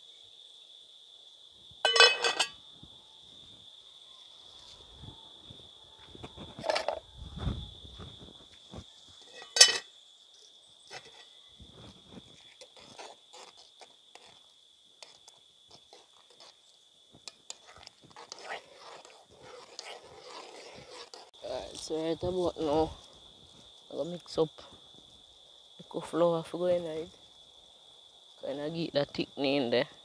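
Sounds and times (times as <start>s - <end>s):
insects droning: 0.0s - 30.0s
pot lid clanking on pot: 1.9s - 2.6s, 9.4s - 9.9s.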